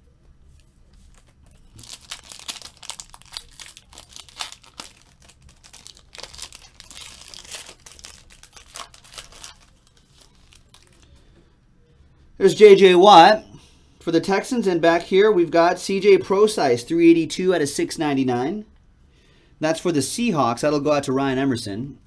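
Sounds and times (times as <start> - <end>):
foil wrapper tearing and crinkling: 1.0 - 11.1.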